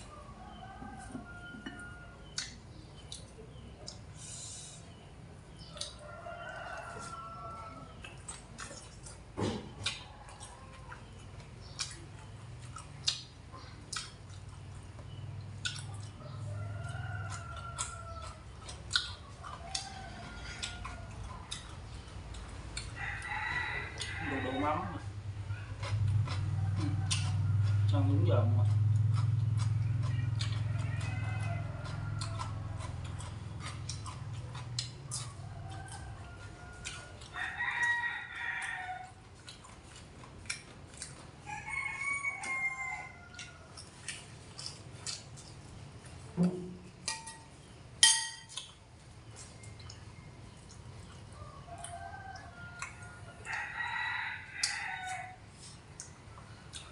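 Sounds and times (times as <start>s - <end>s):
chewing: 0.0s - 47.7s, 48.4s - 56.9s
rooster crowing: 6.0s - 7.9s, 23.0s - 25.6s, 30.1s - 33.2s, 35.1s - 39.2s, 41.4s - 43.8s, 51.4s - 55.5s
chopsticks and spoon clicking dishes: 47.0s - 48.8s.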